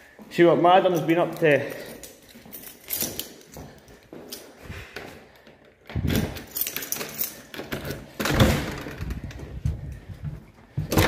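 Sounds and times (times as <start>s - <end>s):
footsteps: 0.0s - 6.7s, 9.0s - 11.0s
light metallic jingling: 0.8s - 4.6s, 6.2s - 7.5s.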